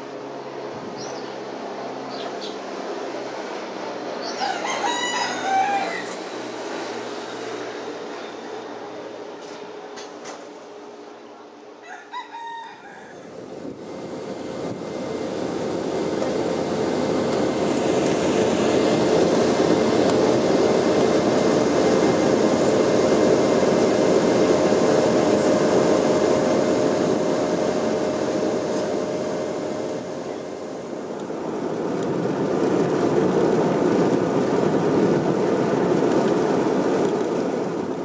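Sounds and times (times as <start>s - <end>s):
aircraft engines droning: 0.0s - 11.5s, 13.2s - 38.0s
air rushing in plane cabin: 13.3s - 38.0s.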